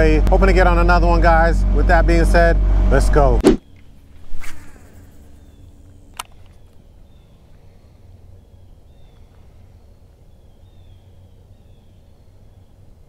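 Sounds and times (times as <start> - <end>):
small bird chirping: 3.6 - 12.8
sharp click: 6.1 - 6.6.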